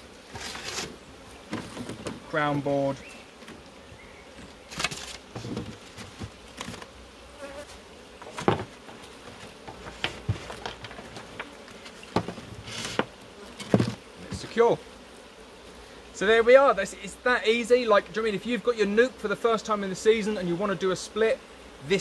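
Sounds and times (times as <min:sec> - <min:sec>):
bees buzzing: 0:00.0 - 0:22.0
wooden lid knocks and scrapes: 0:04.8 - 0:06.4, 0:08.2 - 0:14.5.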